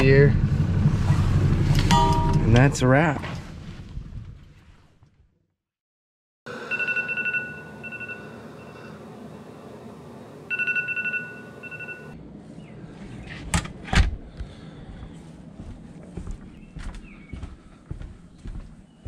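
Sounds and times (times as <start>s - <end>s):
phone alarm beeping: 6.5s - 9.0s, 10.5s - 12.2s.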